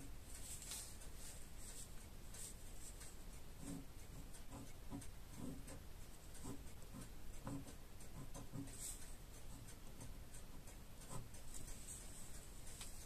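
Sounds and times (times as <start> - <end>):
ballpoint pen scratching paper: 3.6 - 5.8, 6.4 - 10.1, 11.0 - 11.3.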